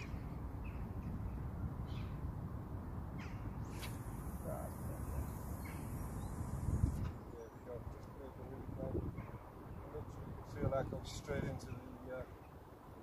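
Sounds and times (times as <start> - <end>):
wind rumble on microphone: 0.0 - 13.0
birds harsh calls: 3.2 - 7.7
high hiss: 3.6 - 7.2.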